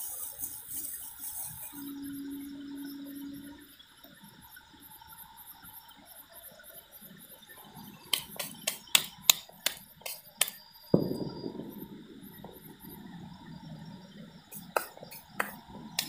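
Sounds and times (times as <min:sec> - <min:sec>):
hands clapping: 0:08.1 - 0:11.1, 0:14.5 - 0:16.0.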